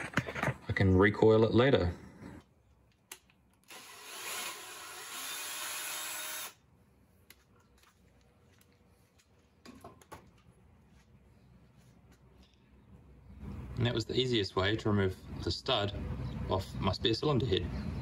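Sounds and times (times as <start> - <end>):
cordless drill running: 3.6 - 6.6.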